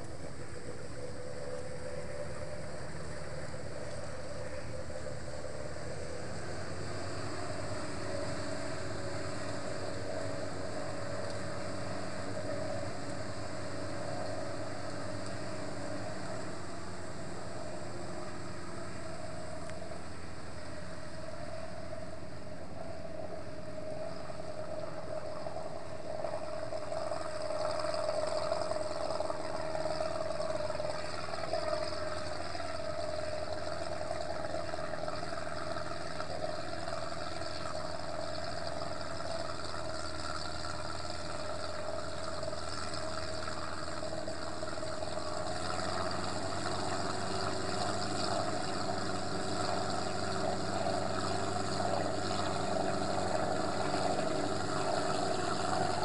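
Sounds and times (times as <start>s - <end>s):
distant tracked vehicle engine: 0.0s - 56.0s.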